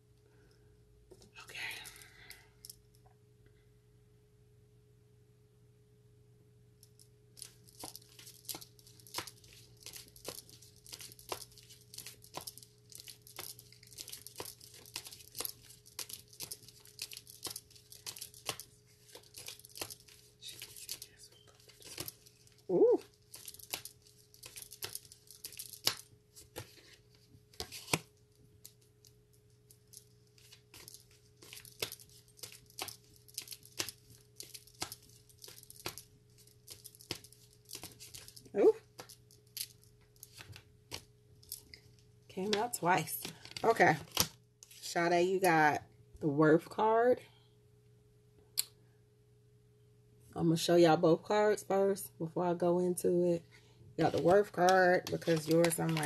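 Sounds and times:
faint steady hum: 0:00.0 - 0:56.0
cards being shuffled: 0:07.4 - 0:41.7, 0:42.4 - 0:44.9, 0:54.0 - 0:56.0.

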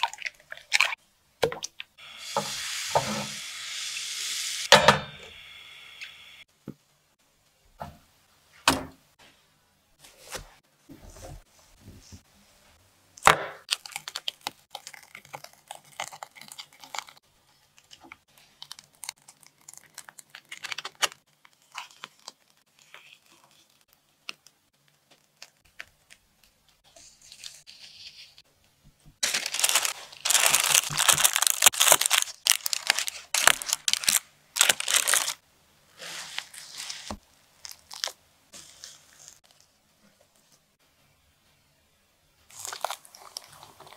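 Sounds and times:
loud crinkling tearing rustle: 0:17.8 - 0:28.4, 0:29.2 - 0:35.4, 0:36.0 - 0:39.7, 0:42.5 - 0:43.9.

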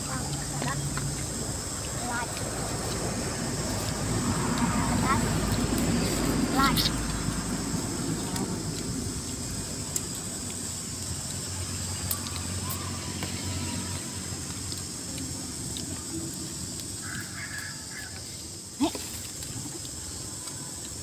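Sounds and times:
high insect drone: 0:00.0 - 0:21.0.

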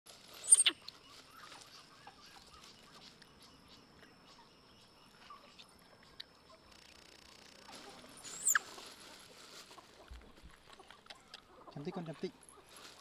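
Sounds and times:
soft high squeaks and chirps: 0:00.1 - 0:13.0
baby macaque loud squeal: 0:08.4 - 0:08.6.

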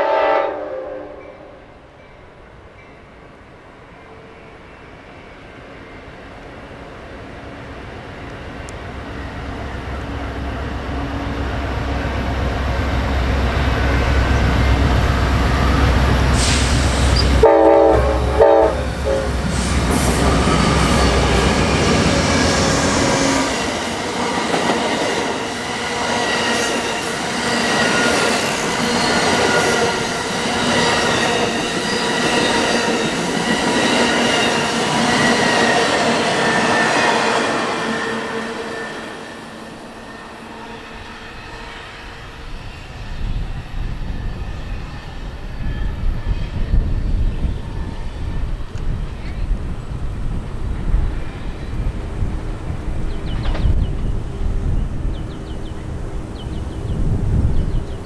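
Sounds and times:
train horn blasts: 0:00.0 - 0:01.8, 0:15.3 - 0:21.6, 0:36.8 - 0:42.6
diesel locomotive rumble: 0:07.8 - 0:26.1
train wheels clattering on rails: 0:19.3 - 0:38.0, 0:52.6 - 0:54.5.

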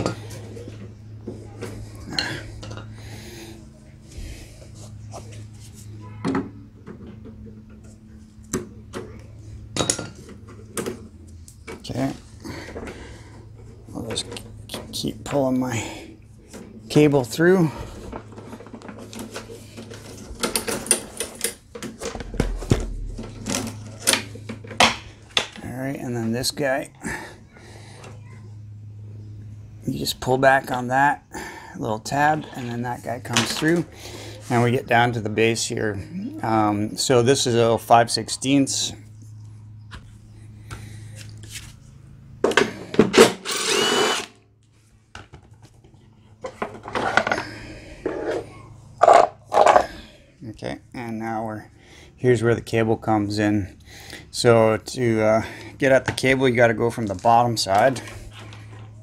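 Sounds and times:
power drill whirring: 0:43.1 - 0:44.4.

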